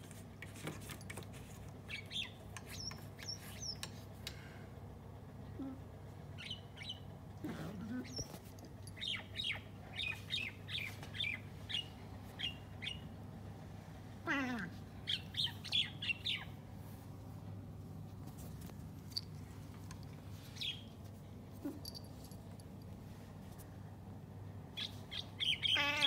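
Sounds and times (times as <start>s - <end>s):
cat meow-like cry: 14.2s - 14.7s, 25.7s - 26.0s
cat chattering chirps: 24.8s - 26.0s.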